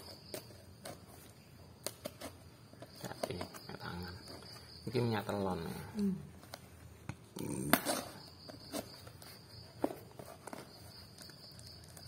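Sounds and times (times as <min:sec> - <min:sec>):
hands handling cardboard parcel: 0:00.0 - 0:05.1, 0:07.7 - 0:12.0.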